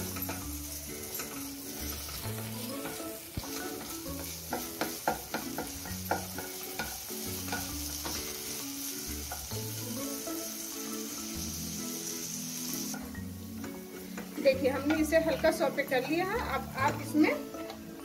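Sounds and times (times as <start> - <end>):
onion sizzling in hot oil: 0.0 - 18.0
soft background music: 0.0 - 18.0
spatula clicking against pan: 3.8 - 8.2.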